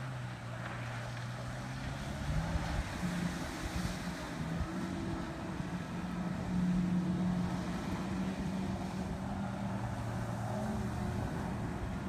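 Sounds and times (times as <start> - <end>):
jet ski engine running: 0.0 - 12.0
water and wind noise: 0.0 - 12.0.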